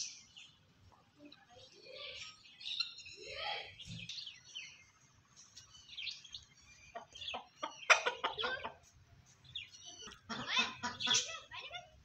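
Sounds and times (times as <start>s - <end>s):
chicken clucking: 6.9s - 9.0s, 10.0s - 11.4s.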